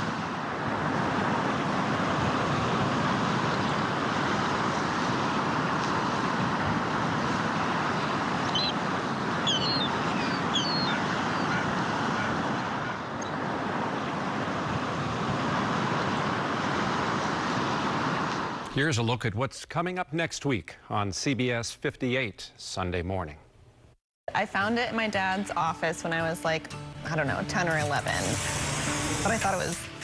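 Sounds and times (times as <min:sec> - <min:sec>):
waves washing: 0:00.0 - 0:19.0, 0:27.1 - 0:30.0
wind: 0:00.0 - 0:30.0
high bird chirps: 0:08.5 - 0:08.8, 0:09.4 - 0:11.7.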